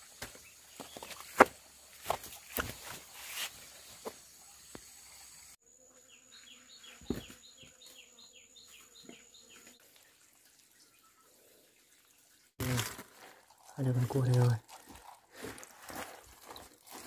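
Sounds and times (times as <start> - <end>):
rustling over rocks and leaves: 0.0 - 4.1, 12.6 - 17.0
insects whining: 0.0 - 9.7.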